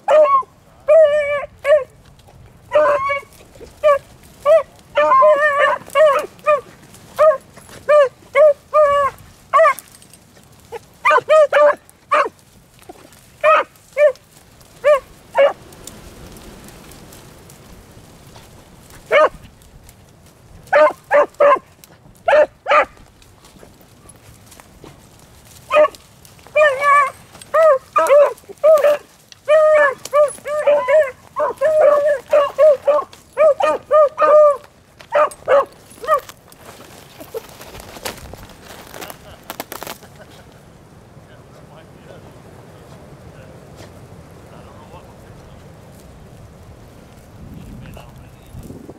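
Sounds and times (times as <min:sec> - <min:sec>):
dogs barking: 0:00.0 - 0:01.9, 0:02.7 - 0:09.9, 0:10.7 - 0:12.4, 0:13.4 - 0:15.6, 0:19.0 - 0:19.5, 0:20.6 - 0:23.0, 0:25.7 - 0:36.3.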